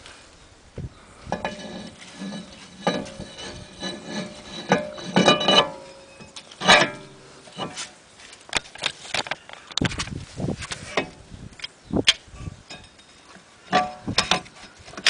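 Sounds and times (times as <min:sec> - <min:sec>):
short metallic rings: 0:01.3 - 0:07.8
metal disc scraping and clinking: 0:01.3 - 0:08.0, 0:12.6 - 0:15.0.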